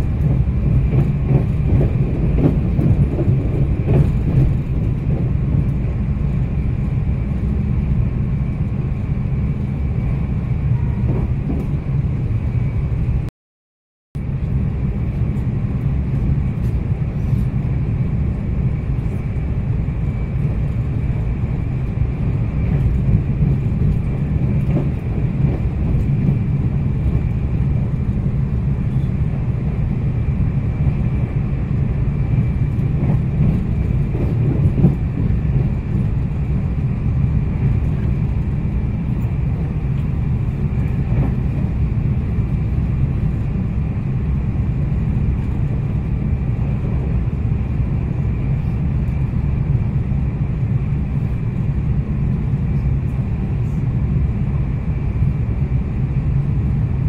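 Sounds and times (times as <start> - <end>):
electric train rumble: 0.0 - 13.3, 14.2 - 57.0.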